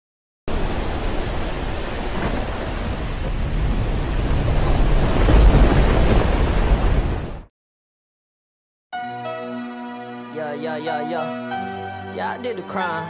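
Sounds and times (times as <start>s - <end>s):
storm-like rushing noise: 0.5s - 7.5s.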